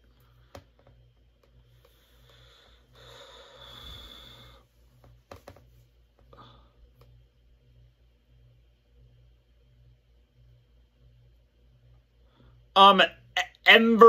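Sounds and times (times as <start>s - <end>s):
low steady hum: 0.0s - 14.0s
breathy exhale: 2.1s - 4.7s.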